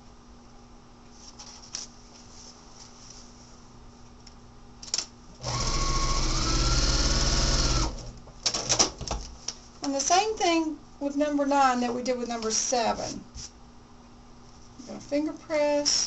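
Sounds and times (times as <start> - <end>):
sewing machine stitching: 5.4 - 8.1.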